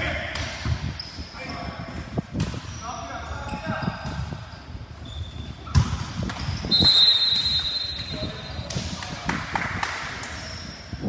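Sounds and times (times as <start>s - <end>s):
high squeal: 3.5s - 5.6s, 6.6s - 8.6s
basketball bouncing on court: 5.6s - 6.6s.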